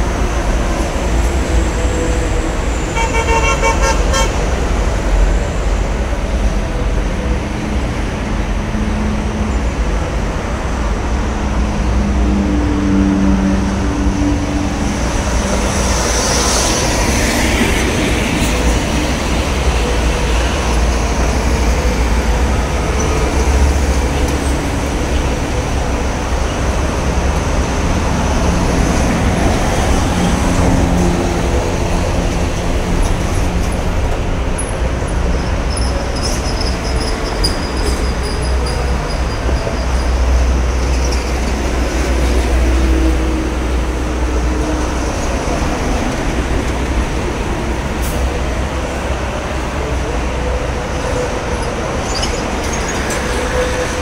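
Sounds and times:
trucks and cars passing: 0.0 - 54.0
vehicle horn: 2.9 - 4.4.

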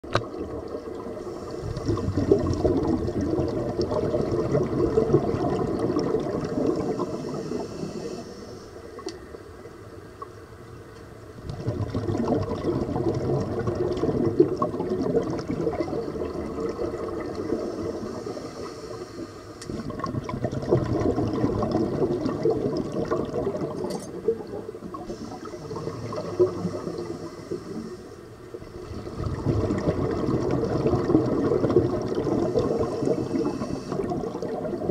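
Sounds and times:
regulator bubbling exhale: 0.0 - 9.1, 11.4 - 34.9
high hiss of inhaling: 1.2 - 2.0, 6.9 - 8.9, 17.6 - 19.8, 25.1 - 28.3, 32.6 - 34.1.

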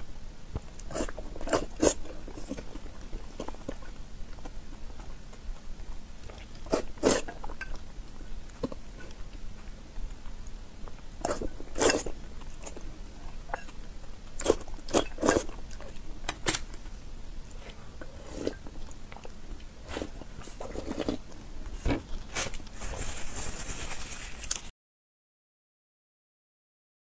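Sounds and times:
person chewing: 0.6 - 22.8
slurping sauce: 6.5 - 7.3, 11.2 - 12.8, 14.4 - 15.9, 17.5 - 18.7, 19.8 - 21.2.

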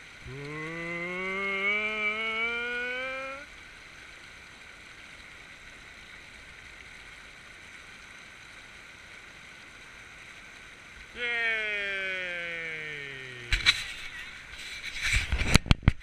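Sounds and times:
long rising vocal call: 0.2 - 3.5, 11.2 - 13.7
river water rushing over rocks: 8.6 - 14.6.

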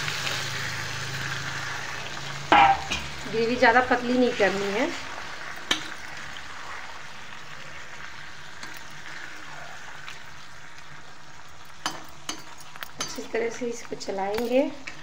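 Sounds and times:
curry simmering and sizzling: 0.0 - 15.0
spatula knocking pan: 2.5 - 3.1.

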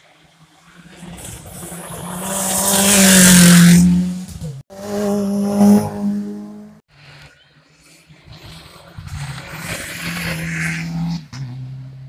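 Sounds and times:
rally car engine at high revs: 0.9 - 6.8, 8.2 - 12.0.

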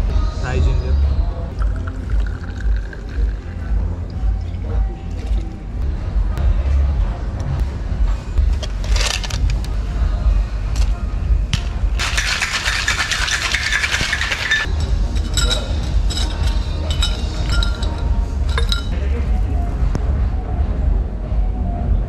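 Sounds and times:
tableware clinking: 12.0 - 19.0.

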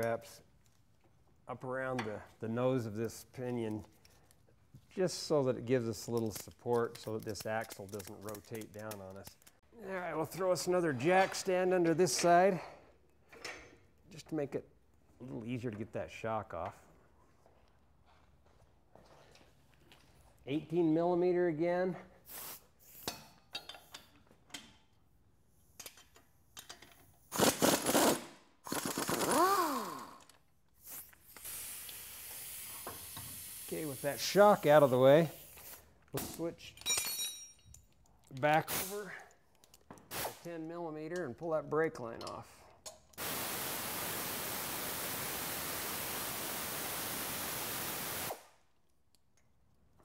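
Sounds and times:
pneumatic impact wrench bursts: 27.3 - 30.2, 30.8 - 35.8, 43.2 - 48.5
pneumatic air ratchet hissing: 30.8 - 35.9.

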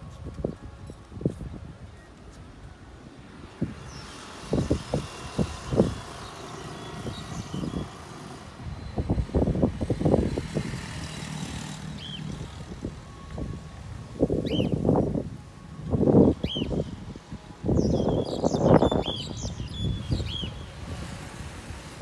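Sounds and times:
wind buffeting microphone: 0.0 - 22.0
faint high chirp: 14.3 - 15.0, 16.2 - 17.0.

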